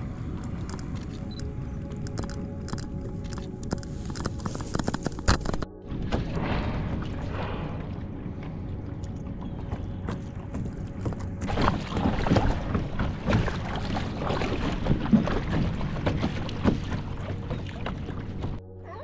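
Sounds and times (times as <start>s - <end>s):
water splashing around kayak: 1.9s - 18.7s.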